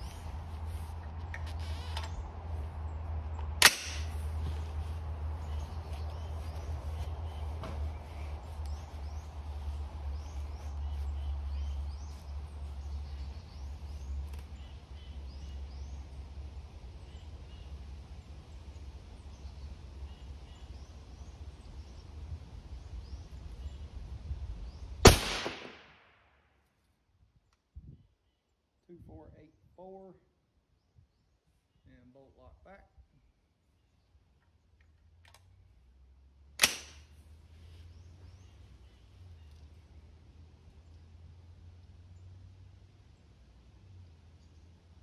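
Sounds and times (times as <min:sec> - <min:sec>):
steady low rumble: 0:00.0 - 0:25.5
rifle shot: 0:03.6 - 0:04.2, 0:25.0 - 0:26.2, 0:36.6 - 0:37.1
small birds chirping: 0:04.3 - 0:25.0.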